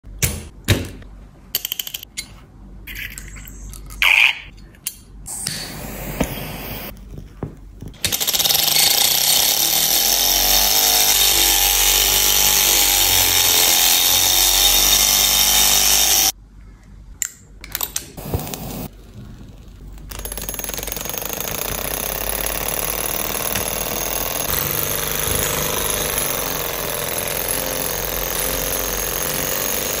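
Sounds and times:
rapid mechanical clatter: 18.8s - 30.0s.

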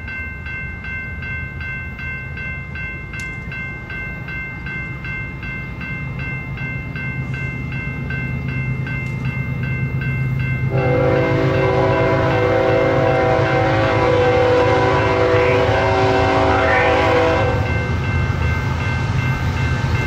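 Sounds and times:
locomotive bell dinging: 0.0s - 20.0s
locomotive engine rumble: 3.0s - 20.0s
locomotive air horn blast: 10.7s - 17.7s.

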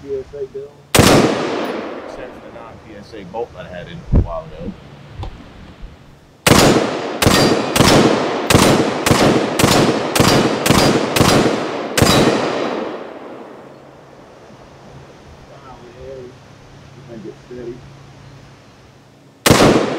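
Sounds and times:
rifle shots with echo: 0.9s - 2.5s, 6.4s - 13.7s, 19.4s - 19.9s.

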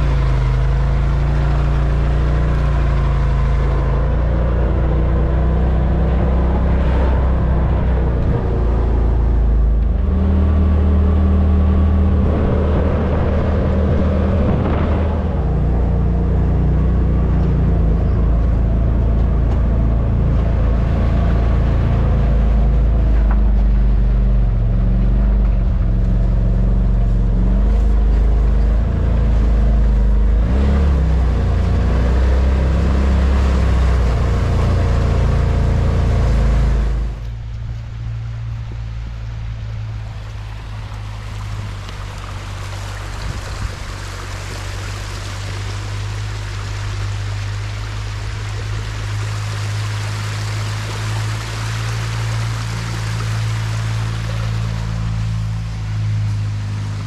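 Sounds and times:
engine running: 0.0s - 57.0s.

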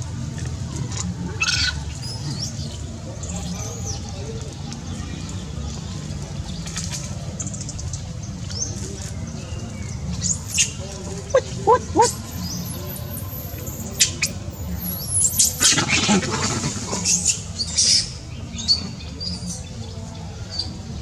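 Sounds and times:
monkey squeaking and chirping: 10.2s - 16.0s.

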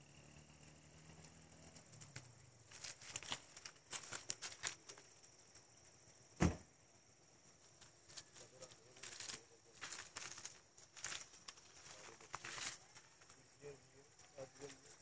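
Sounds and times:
dull thump: 6.4s - 6.7s.

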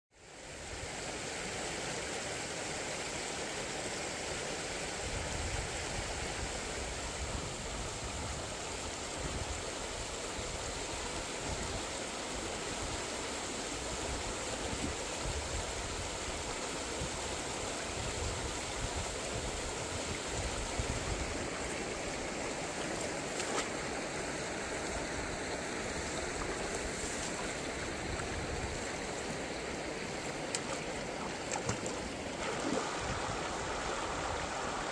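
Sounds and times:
stream flowing over rocks: 0.2s - 34.9s
feet splashing through water: 21.6s - 24.8s, 25.8s - 33.0s.

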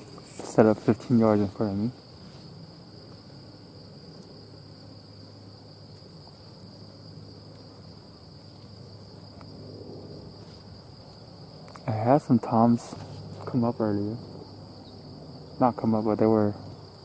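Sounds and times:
insect chorus trilling: 0.0s - 17.0s.

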